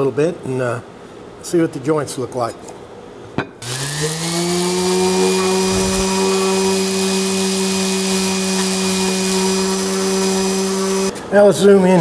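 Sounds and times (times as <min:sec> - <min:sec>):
electric orbit sander running: 0:03.6 - 0:11.1.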